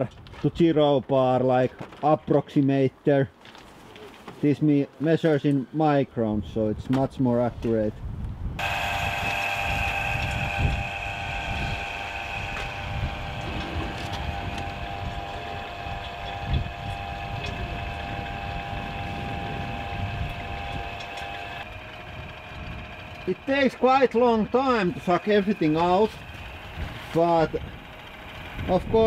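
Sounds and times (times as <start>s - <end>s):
vacuum pump whining: 8.6s - 29.0s.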